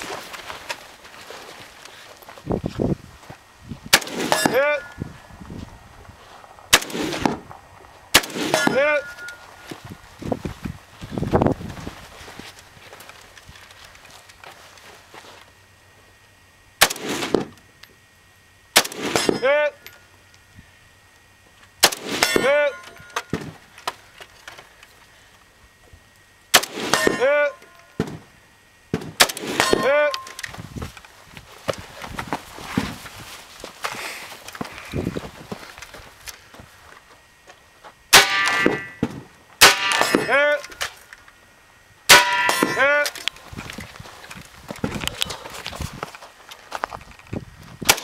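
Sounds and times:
rifle shot: 0:03.9 - 0:04.6, 0:06.7 - 0:07.4, 0:08.1 - 0:08.7, 0:16.8 - 0:17.5, 0:18.8 - 0:19.4, 0:21.8 - 0:22.4, 0:26.5 - 0:27.4, 0:29.0 - 0:30.3
steel target ringing: 0:04.0 - 0:05.0, 0:08.2 - 0:09.6, 0:18.9 - 0:20.0, 0:21.9 - 0:23.5, 0:26.7 - 0:28.0, 0:29.4 - 0:30.4, 0:38.1 - 0:40.7, 0:42.1 - 0:43.2.

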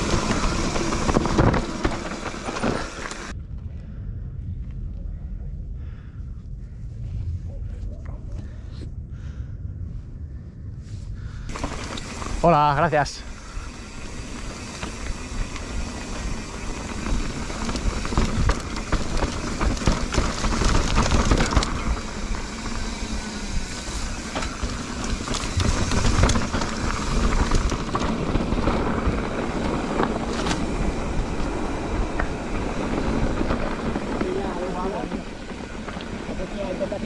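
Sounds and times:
bike tyres crunching over dirt: 0:00.0 - 0:03.7, 0:11.4 - 0:37.0
bike rattling over bumps: 0:00.0 - 0:03.9, 0:11.4 - 0:37.0.

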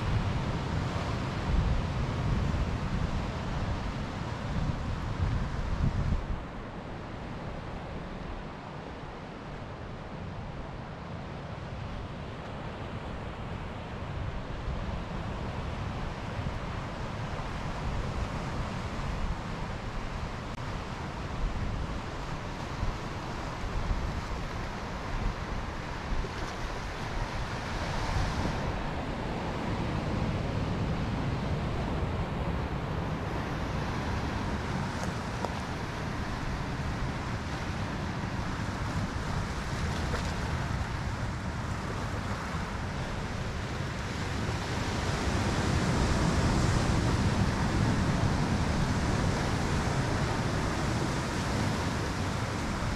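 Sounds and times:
wind buffeting microphone: 0:00.0 - 0:06.7
surf breaking on rocky shore: 0:14.2 - 0:52.9.

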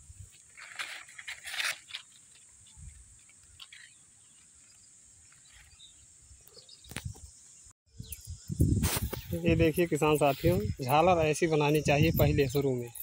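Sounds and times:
dry leaves crunching and rustling: 0:00.4 - 0:02.6.

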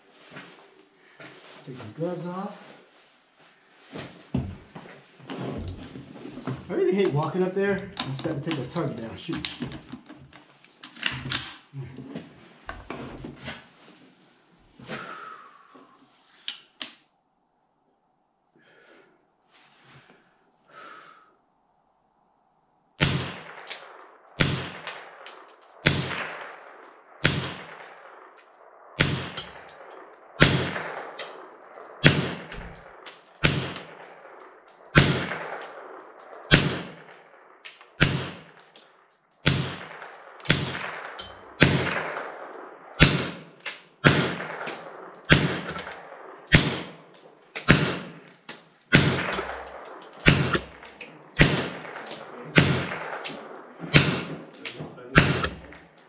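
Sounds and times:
rifle shots with echo: 0:06.7 - 0:09.6, 0:23.0 - 0:56.0.

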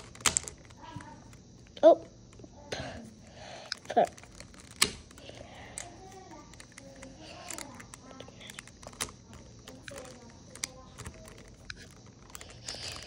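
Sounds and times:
plastic cube pieces clicking: 0:00.0 - 0:01.8, 0:03.6 - 0:13.0.

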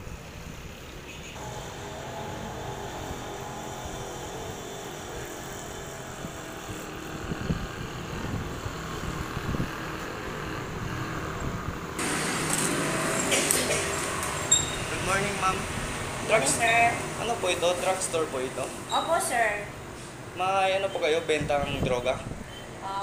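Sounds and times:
passing traffic rumble: 0:00.0 - 0:23.0
loud even hiss: 0:12.0 - 0:19.1.

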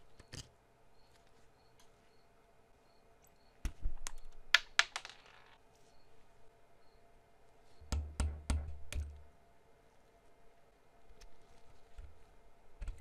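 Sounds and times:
hard objects clicking and knocking: 0:04.0 - 0:05.6.

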